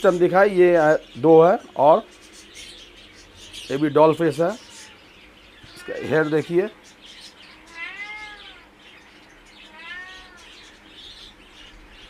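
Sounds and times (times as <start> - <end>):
kittens meowing: 4.2 - 12.0.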